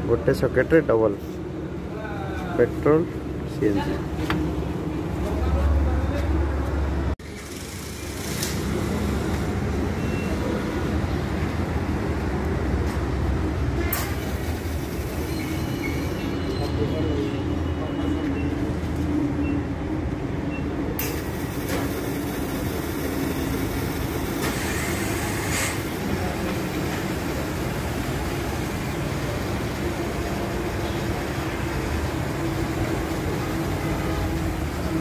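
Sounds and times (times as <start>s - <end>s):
filling station machinery drone: 7.2s - 35.0s.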